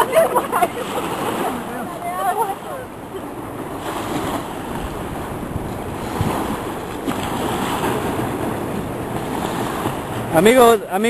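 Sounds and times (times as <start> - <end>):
fast-flowing river rushing: 0.0 - 11.0
wind buffeting microphone: 2.2 - 10.4.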